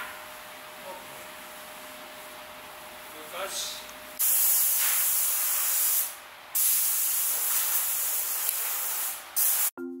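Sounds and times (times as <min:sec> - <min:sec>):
compressed air hissing from spray gun: 0:04.2 - 0:09.7.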